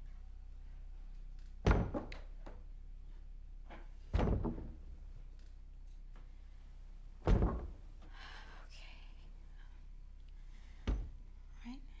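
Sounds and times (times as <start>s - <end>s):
head thudding against wooden wardrobe: 1.7s - 2.2s, 4.1s - 4.8s, 7.2s - 7.8s, 10.8s - 11.2s.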